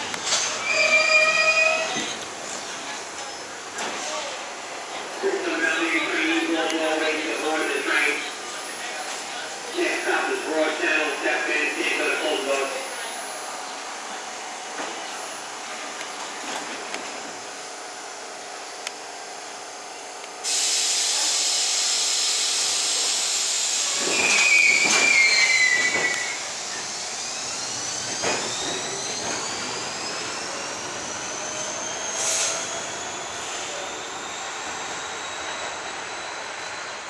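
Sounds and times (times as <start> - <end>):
train wheels squealing: 0.3 - 2.2, 23.7 - 37.0
air brakes hissing: 20.4 - 36.1.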